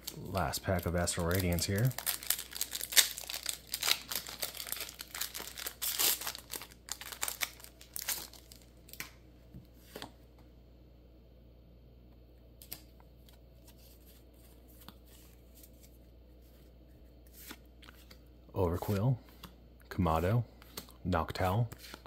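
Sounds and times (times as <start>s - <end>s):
foil wrapper crinkling and tearing: 0.0s - 9.0s.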